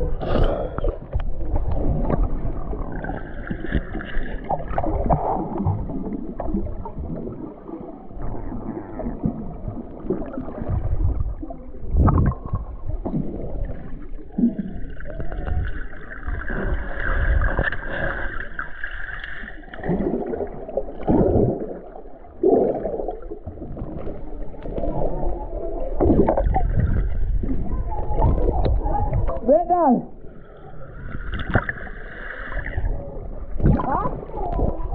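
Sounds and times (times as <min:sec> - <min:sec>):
underwater gurgling and sloshing: 0:00.0 - 0:34.9
dull knocks of moving water: 0:01.0 - 0:07.4, 0:26.0 - 0:29.7, 0:31.2 - 0:31.8, 0:33.5 - 0:34.9.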